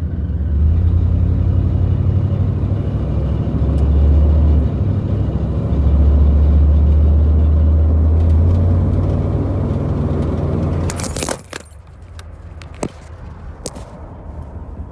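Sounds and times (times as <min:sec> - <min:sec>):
car engine and road noise: 0:00.0 - 0:14.9
phone handling rustling: 0:10.8 - 0:14.0.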